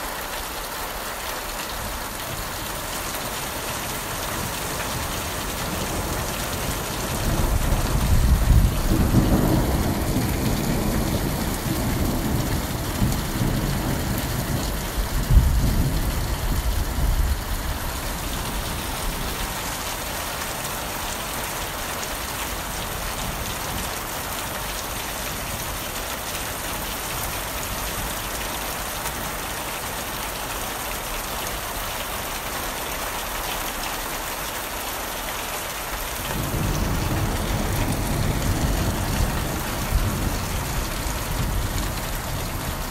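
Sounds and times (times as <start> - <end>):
heavy rain: 0.0 - 42.9
thunder rolling: 7.1 - 19.4, 36.3 - 42.9.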